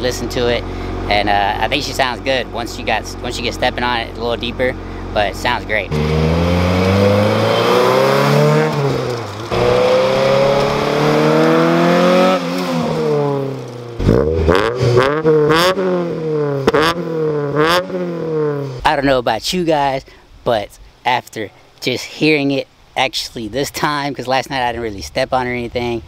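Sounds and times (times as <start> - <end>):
engine revving in quick blips: 5.8 - 18.8
car engine accelerating past: 5.9 - 18.7.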